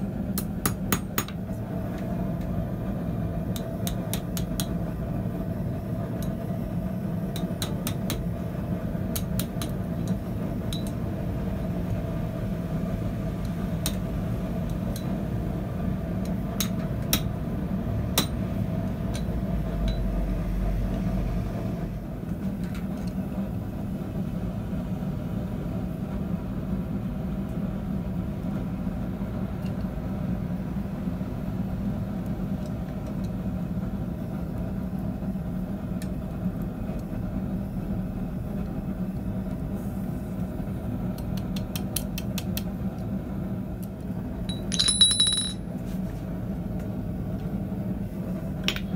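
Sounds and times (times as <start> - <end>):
tongs and hammer tapping metal: 9.1 - 11.0, 44.5 - 45.6.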